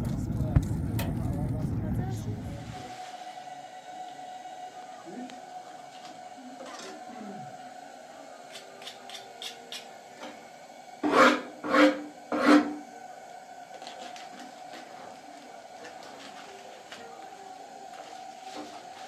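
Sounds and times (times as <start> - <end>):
rough scraping strokes: 11.0 - 12.8.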